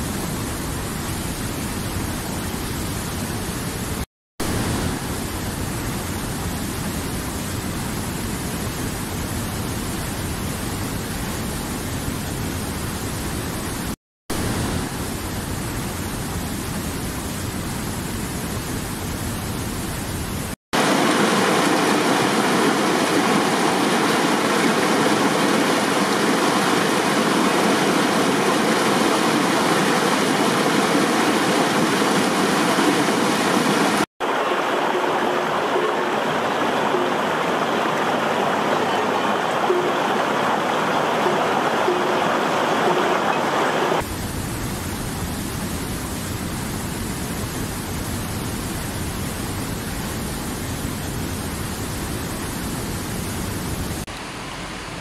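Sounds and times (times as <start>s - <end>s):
stream water rushing over rocks: 4.4s - 6.3s, 20.8s - 44.1s.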